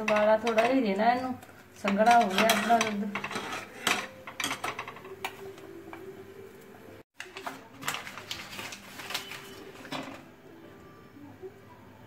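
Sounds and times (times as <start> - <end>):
steel spoon scraping a pot: 0.0 - 5.5.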